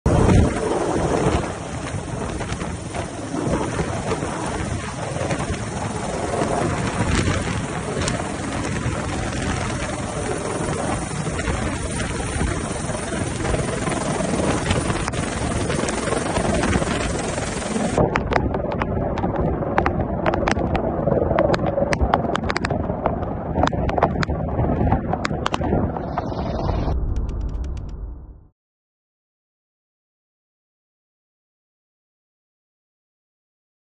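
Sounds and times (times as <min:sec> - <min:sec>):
helicopter rotor noise: 0:00.1 - 0:22.7.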